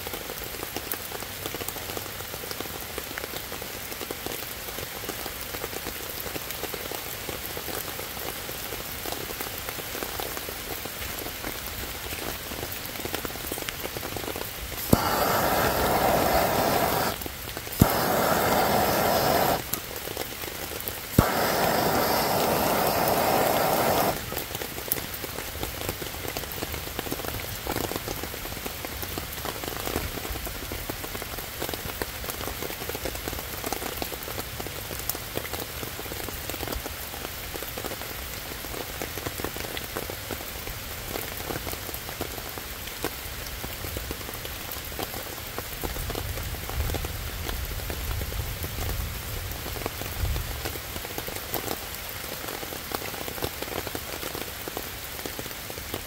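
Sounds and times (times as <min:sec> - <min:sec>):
rain pattering on leaves: 0:00.0 - 0:56.0
torch lighter clicking: 0:14.8 - 0:17.2, 0:17.8 - 0:19.8, 0:21.2 - 0:24.3
jet flame hissing: 0:14.8 - 0:19.8, 0:21.1 - 0:24.4.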